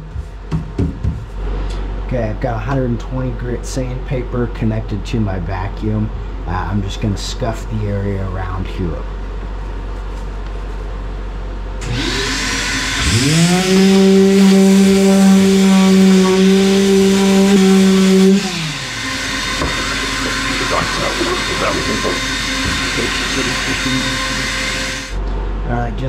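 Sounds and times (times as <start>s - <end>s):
orbital sander hum: 11.8s - 25.2s
vacuum hiss: 11.8s - 25.2s.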